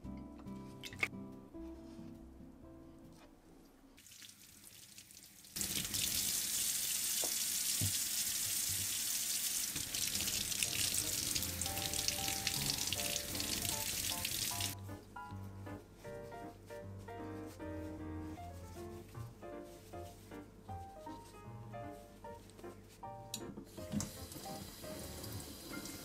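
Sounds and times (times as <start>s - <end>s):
kitchen tap running: 4.0s - 14.8s, 23.7s - 26.0s
water splashing over vegetable: 4.0s - 14.8s.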